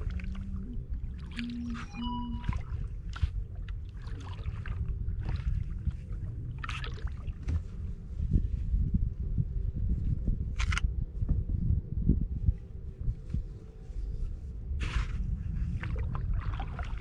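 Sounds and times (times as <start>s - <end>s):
paddle splashing in water: 0.0s - 7.6s, 15.8s - 17.0s
steady low rumble: 0.0s - 17.0s.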